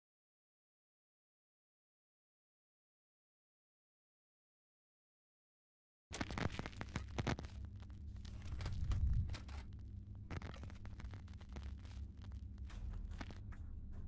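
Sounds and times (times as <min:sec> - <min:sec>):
sharp glitchy crackles and clicks: 0:06.1 - 0:13.6
steady low hum: 0:06.2 - 0:14.0.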